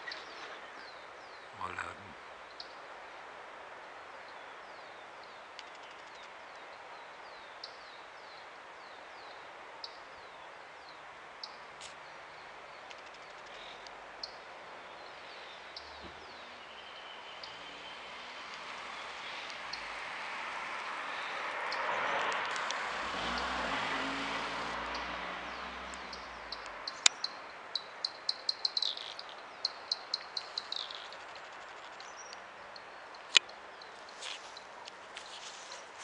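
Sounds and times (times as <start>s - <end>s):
background hiss: 0.0s - 36.0s
bird chirping: 24.8s - 34.7s
sharp ticks: 25.9s - 31.0s.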